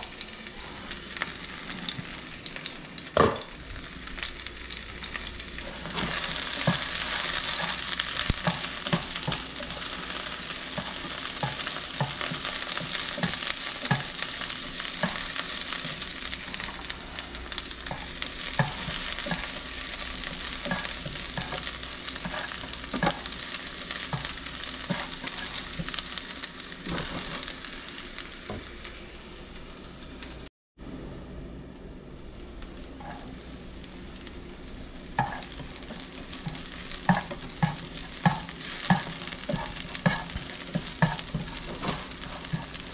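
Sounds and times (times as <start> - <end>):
food sizzling in hot oil: 0.0 - 30.5, 32.8 - 42.9
utensil scraping a pan: 5.6 - 9.8, 14.9 - 23.3, 26.8 - 27.5, 35.2 - 42.9.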